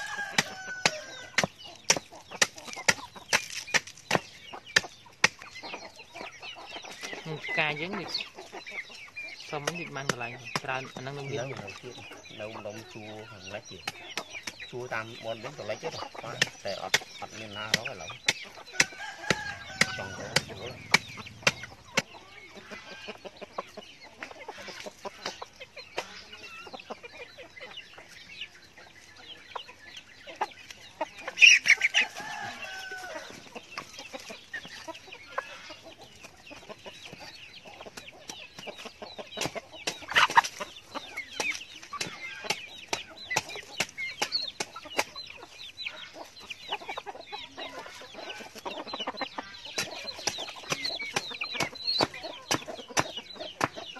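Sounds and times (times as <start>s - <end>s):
taps and scratches: 0.0s - 5.8s, 49.7s - 53.9s
chickens clucking: 0.0s - 53.9s.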